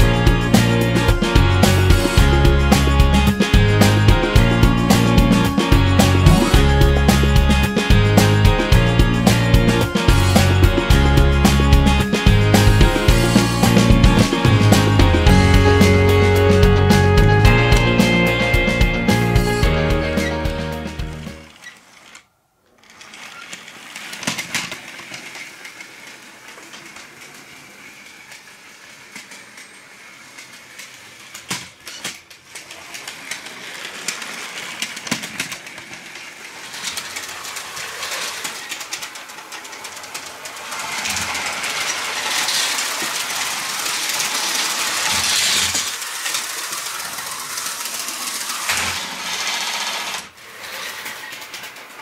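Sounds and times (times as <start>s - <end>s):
toy train wheels clattering: 0.0s - 17.0s, 21.2s - 52.0s
electric motor whir: 36.8s - 50.3s.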